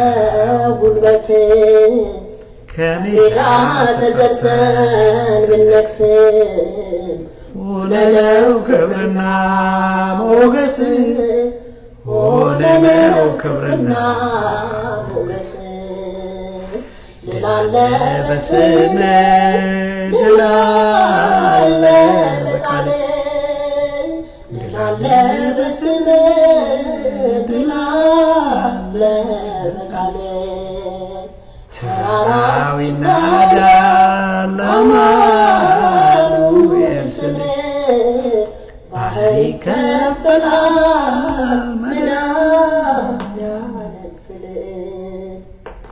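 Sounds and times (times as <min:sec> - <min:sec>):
man chanting a hymn: 0:02.7 - 0:05.9, 0:12.0 - 0:15.8
man breathing: 0:16.6 - 0:17.2.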